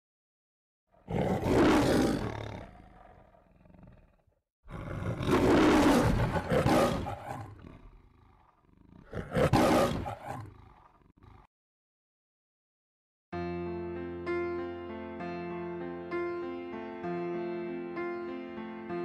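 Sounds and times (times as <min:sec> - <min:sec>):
lion roaring: 0:01.0 - 0:11.5.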